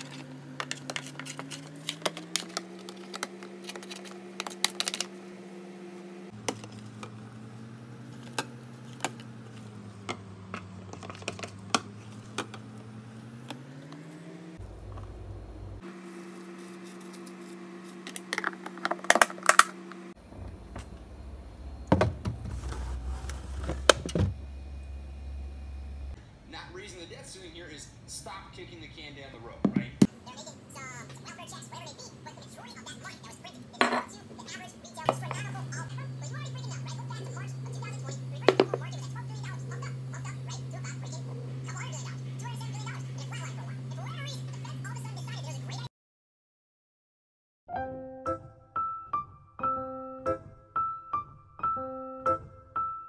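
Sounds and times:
dough scraper scraping plastic tub: 0.0s - 5.1s
steady hum: 14.3s - 44.1s.

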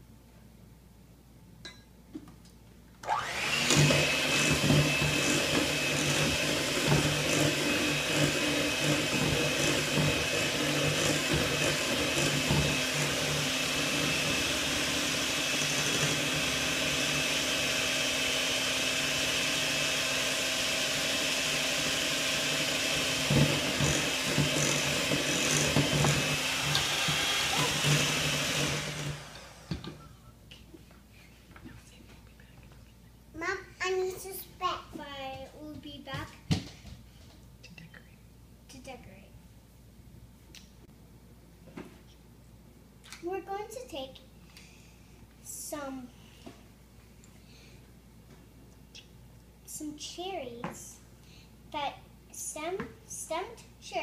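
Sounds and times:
electric hand mixer running: 3.0s - 30.0s.

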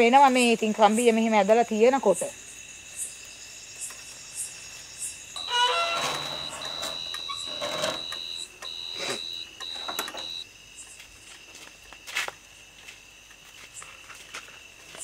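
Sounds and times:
shrill electronic alarm beep: 5.4s - 10.4s.

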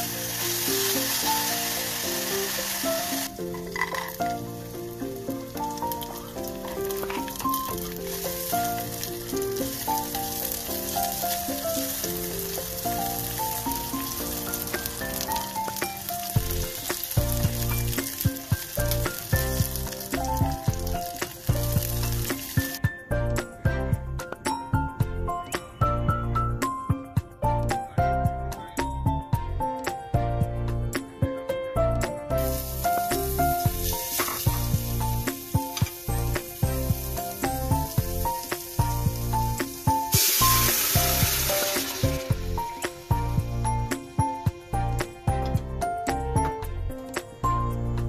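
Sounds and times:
vegetables sizzling in hot oil: 0.0s - 22.8s, 32.4s - 44.5s
background music with bass line: 0.0s - 48.0s
simple background melody: 0.0s - 48.0s.

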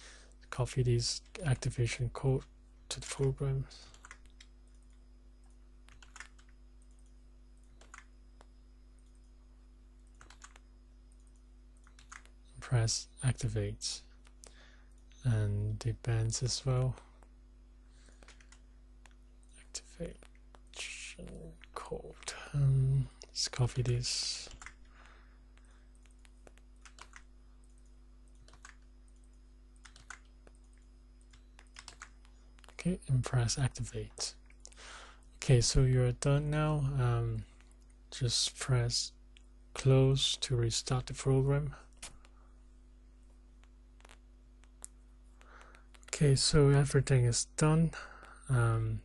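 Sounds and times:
steady low hum: 0.0s - 49.0s
mouse and keyboard clicks: 10.2s - 12.4s.

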